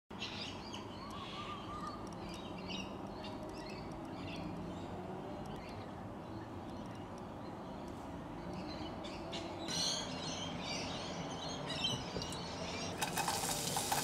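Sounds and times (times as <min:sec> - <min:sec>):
birds chirping: 0:00.1 - 0:14.0.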